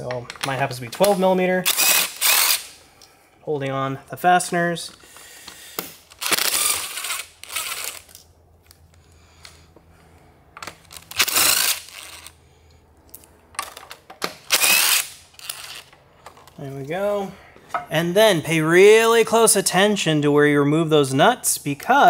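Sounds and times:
cordless power driver whirring: 1.7s - 2.7s, 5.8s - 8.2s, 10.9s - 12.3s, 14.5s - 15.8s.

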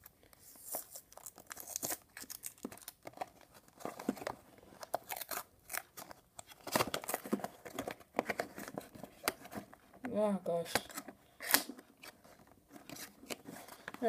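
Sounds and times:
plastic shrink-wrap crinkling and tearing: 0.0s - 4.1s, 4.7s - 7.9s.

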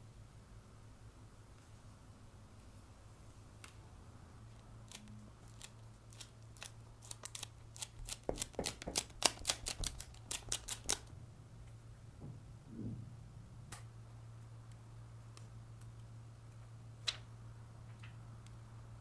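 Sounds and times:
sticker tapping on glass screen: 8.2s - 10.0s.

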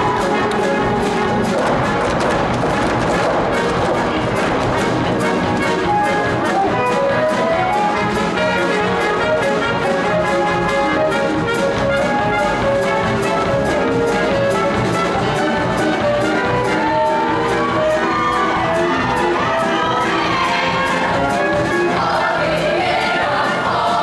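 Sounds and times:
brass band music: 0.0s - 24.0s
steady drum beat: 0.0s - 24.0s.

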